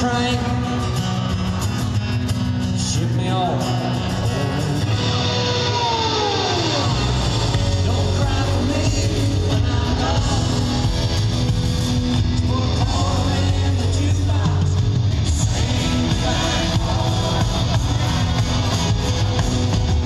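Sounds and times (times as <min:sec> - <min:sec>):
live country rock band: 0:00.0 - 0:20.0
person singing: 0:02.8 - 0:11.2, 0:12.3 - 0:19.4.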